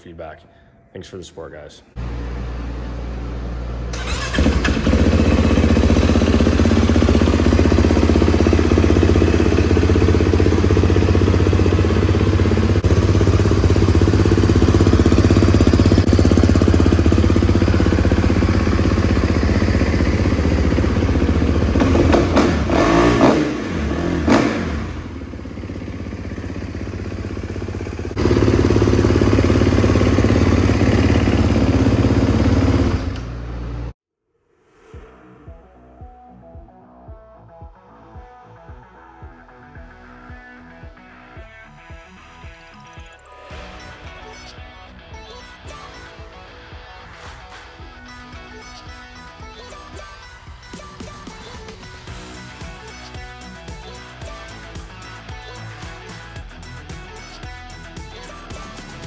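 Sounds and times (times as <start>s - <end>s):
motorcycle engine running: 2.0s - 33.9s.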